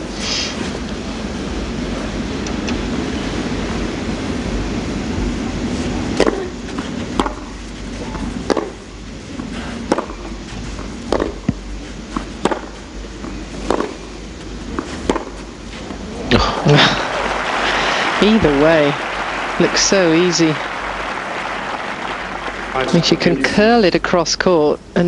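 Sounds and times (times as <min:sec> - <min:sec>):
tennis ball bouncing on clay: 0:06.2 - 0:07.5, 0:08.4 - 0:08.8, 0:09.9 - 0:14.1, 0:14.7 - 0:15.5
racket striking tennis ball: 0:06.2 - 0:08.8, 0:09.8 - 0:10.4, 0:11.1 - 0:12.8, 0:13.6 - 0:14.1, 0:14.7 - 0:15.5
low crowd murmur: 0:16.0 - 0:23.9.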